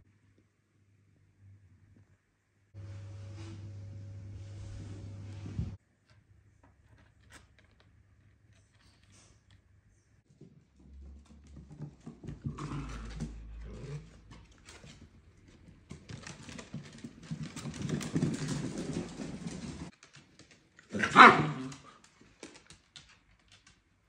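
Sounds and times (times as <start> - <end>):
puppies growling: 11.8 - 19.9
puppy barking: 21.0 - 21.9.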